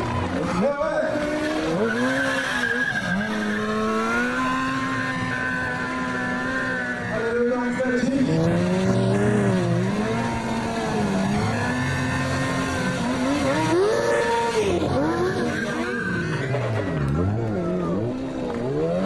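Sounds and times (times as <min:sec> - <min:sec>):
tyre skidding on tarmac: 0:00.0 - 0:07.1
motorcycle engine revving: 0:00.0 - 0:19.0.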